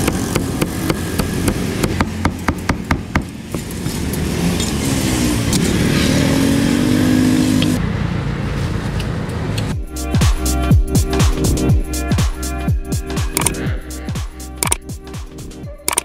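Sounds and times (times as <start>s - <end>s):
cleaver chopping on wooden block: 0.0s - 3.6s
vehicle engine running: 0.0s - 16.0s.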